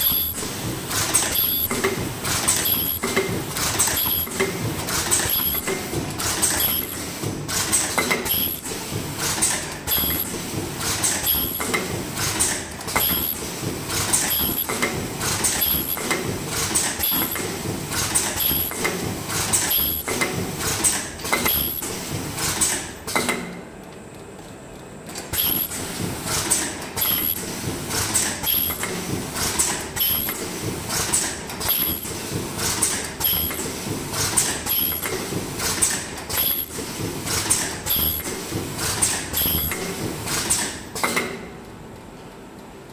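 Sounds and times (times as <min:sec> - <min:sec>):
rapid mechanical clacking: 0:00.0 - 0:23.3
short pneumatic hissing bursts: 0:25.4 - 0:27.5.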